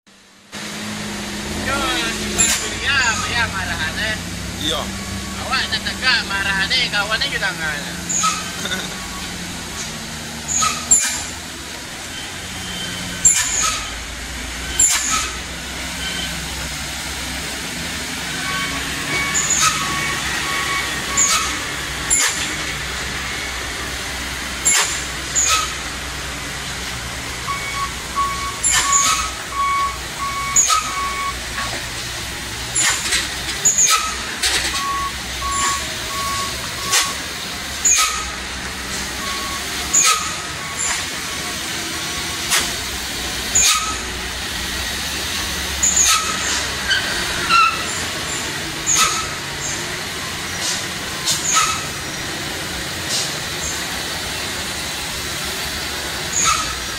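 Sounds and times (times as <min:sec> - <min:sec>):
heavy diesel trucks running: 0:00.0 - 0:56.9
truck reversing beeper: 0:01.5 - 0:42.9
air brake hisses: 0:50.4 - 0:52.0, 0:53.0 - 0:53.9.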